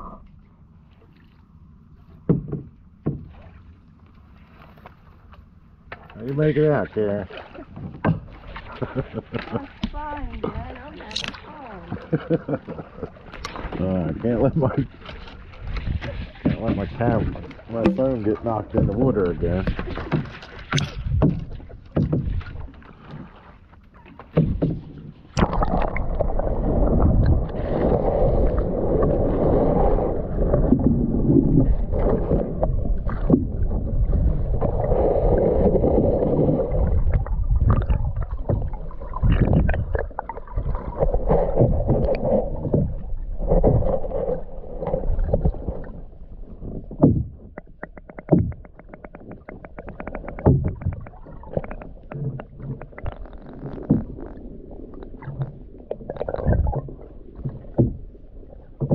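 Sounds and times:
muffled underwater river rushing: 0:00.0 - 0:58.9
knocks and clicks: 0:47.0 - 0:53.2.

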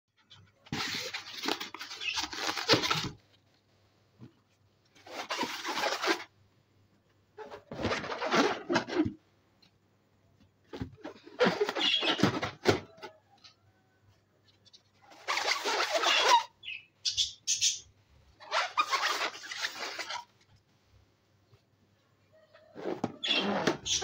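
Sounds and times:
rubber balloons rustling: 0:00.6 - 0:03.4, 0:04.2 - 0:06.3, 0:07.4 - 0:09.2, 0:10.6 - 0:13.2, 0:15.0 - 0:16.5, 0:18.4 - 0:20.6.

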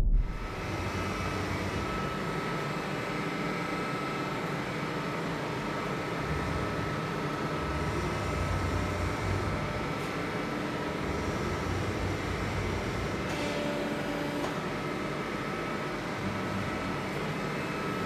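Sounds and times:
low rumble: 0:00.0 - 0:01.0.

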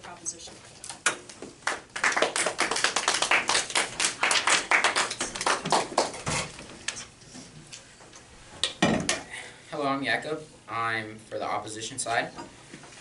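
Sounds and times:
people clapping: 0:01.1 - 0:06.4.

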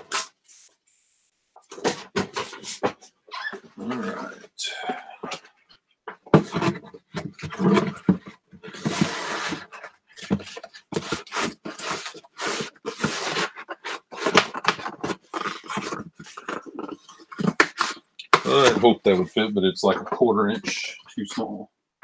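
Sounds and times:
cardboard box rustling and scraping: 0:06.4 - 0:18.9.

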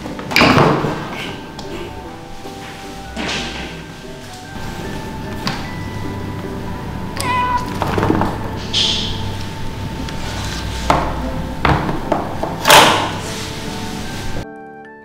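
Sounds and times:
cat meowing: 0:07.2 - 0:08.5.

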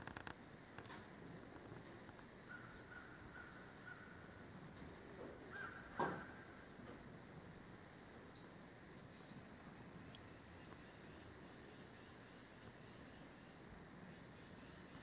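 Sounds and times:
level bird call: 0:02.5 - 0:09.4
high chirps of small birds: 0:04.6 - 0:11.7.

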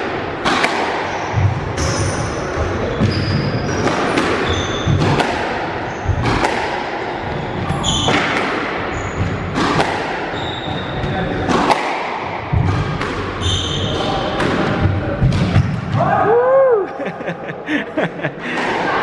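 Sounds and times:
squash ball strikes echoing: 0:00.0 - 0:16.2
shoes squeaking on wooden floor: 0:02.9 - 0:05.2, 0:10.4 - 0:11.0.

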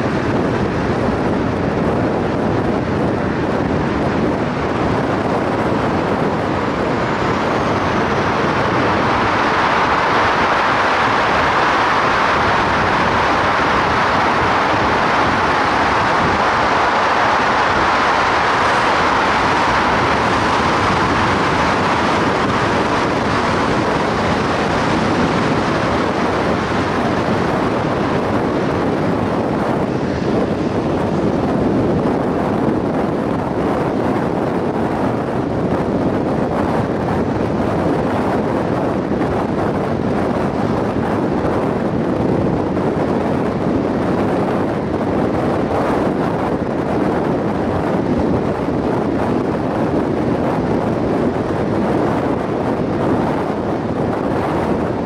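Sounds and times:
tyres on wet asphalt: 0:00.0 - 0:33.0
passing traffic: 0:00.0 - 0:55.0.

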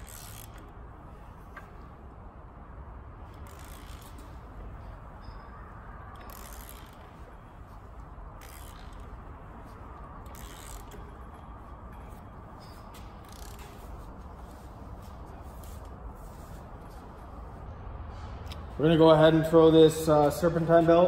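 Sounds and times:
hand ratchet clicking: 0:00.0 - 0:00.9, 0:03.3 - 0:04.4, 0:06.1 - 0:07.2, 0:08.3 - 0:14.0.

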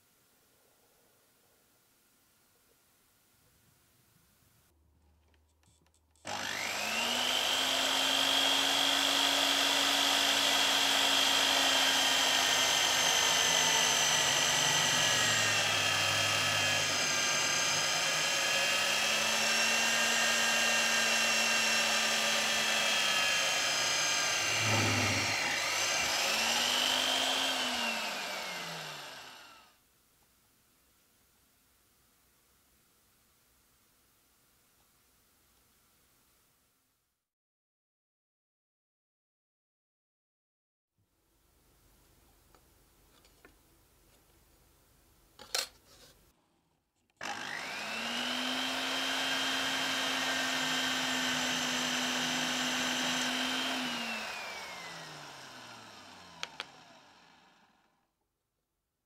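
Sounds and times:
drill press motor whining: 0:06.3 - 0:29.7, 0:47.2 - 0:58.0.

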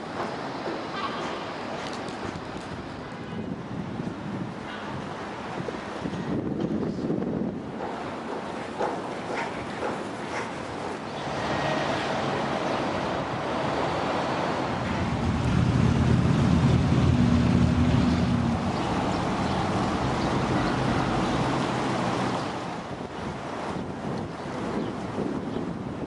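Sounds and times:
city traffic noise: 0:00.0 - 0:26.0
vehicle engine humming: 0:14.5 - 0:22.6.

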